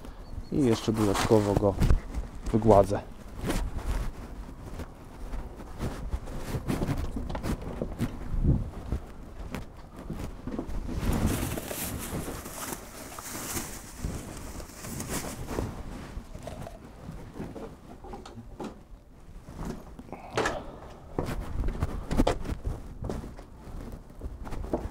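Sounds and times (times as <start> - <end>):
small rustles and clicks: 0.0 - 24.9.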